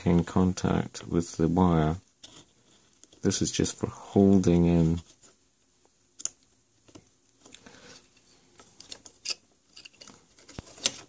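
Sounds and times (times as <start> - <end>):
faint rustling: 2.0 - 6.0.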